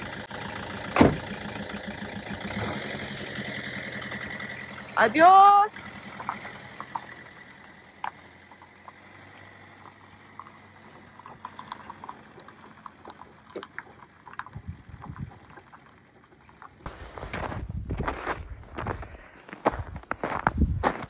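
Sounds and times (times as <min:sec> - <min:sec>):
van engine driving away: 0:00.0 - 0:21.0
light crunches in snow: 0:16.9 - 0:21.0.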